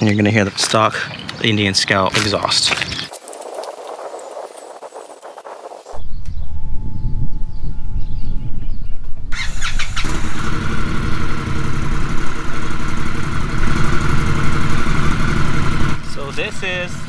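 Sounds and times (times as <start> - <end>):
motorcycle engine starting and idling: 9.3 - 16.9.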